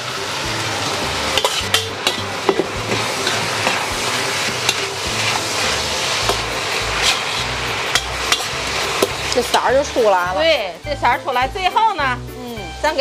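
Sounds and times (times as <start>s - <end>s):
food sizzling in a wok: 0.0s - 13.0s
metal spatula scraping a wok: 0.8s - 10.5s.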